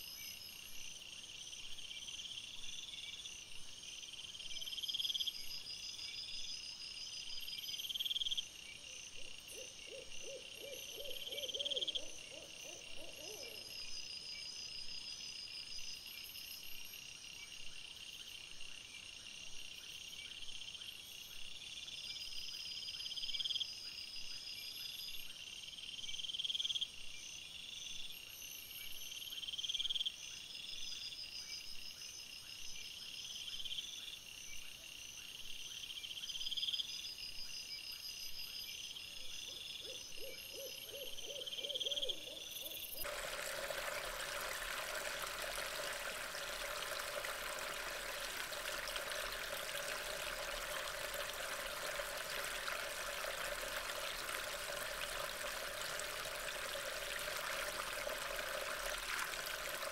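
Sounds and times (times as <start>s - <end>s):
insects chirring: 42.7s - 59.9s.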